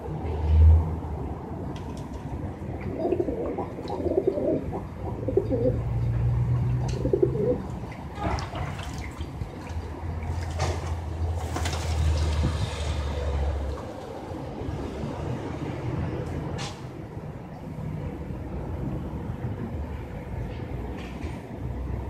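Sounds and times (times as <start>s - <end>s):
pigeons cooing: 2.7s - 7.9s
water splashing: 6.9s - 13.9s
wings flapping: 11.4s - 12.5s.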